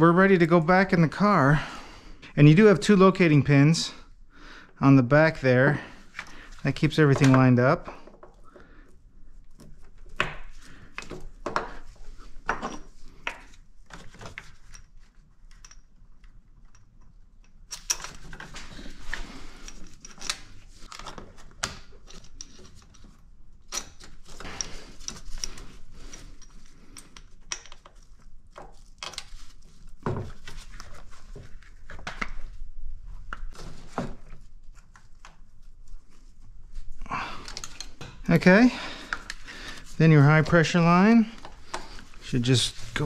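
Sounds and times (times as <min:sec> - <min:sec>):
metallic clinks and scraping: 0:14.4 - 0:21.1, 0:22.0 - 0:30.0, 0:37.3 - 0:43.0.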